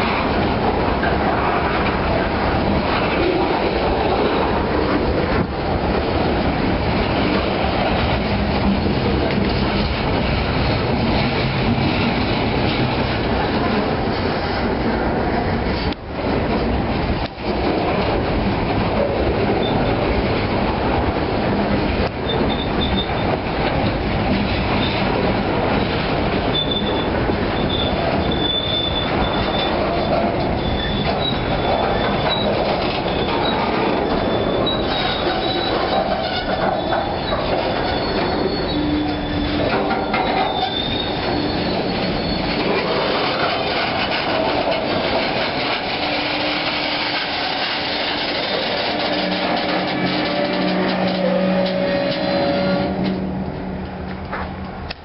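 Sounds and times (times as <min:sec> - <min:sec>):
train wheels rumbling on rail: 0:00.0 - 0:55.0
high-pitched wheel squeal: 0:22.2 - 0:23.4, 0:26.5 - 0:44.8, 0:45.5 - 0:53.4.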